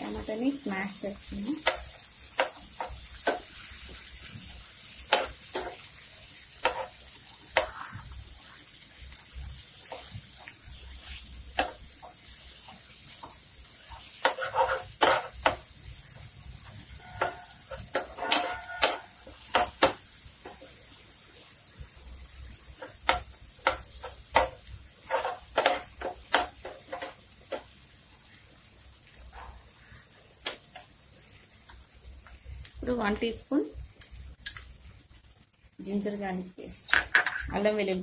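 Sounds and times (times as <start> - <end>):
faint sizzle of frying: 0.0 - 38.0
metal spoon scraping a frying pan: 6.6 - 8.0, 14.0 - 15.5, 16.8 - 19.7, 23.9 - 27.2.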